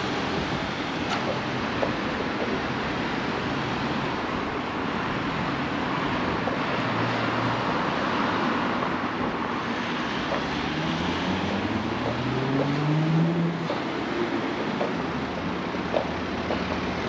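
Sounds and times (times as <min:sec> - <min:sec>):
road traffic noise: 0:00.0 - 0:17.0
passing vehicle engine hum: 0:05.2 - 0:17.0.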